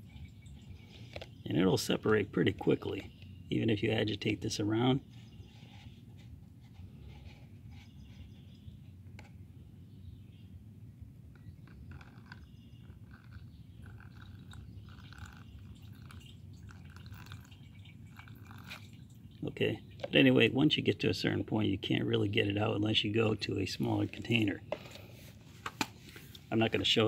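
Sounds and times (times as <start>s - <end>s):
liquid trickling onto paper filter: 0.0s - 1.5s, 13.0s - 20.2s
small crackles: 11.4s - 19.0s.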